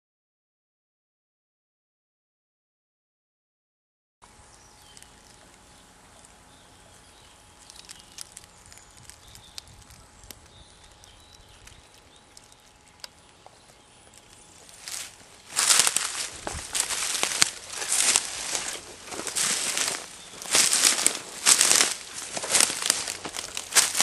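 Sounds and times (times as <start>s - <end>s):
faint outdoor ambience: 4.2s - 24.0s
loud crackling crunching rustle: 4.3s - 24.0s
small clicks and ticks: 4.5s - 6.4s, 7.0s - 16.3s.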